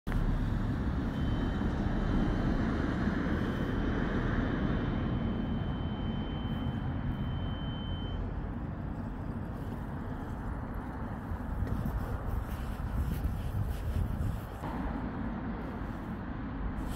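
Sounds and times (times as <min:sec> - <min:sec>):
thin high whine: 0:01.0 - 0:08.4.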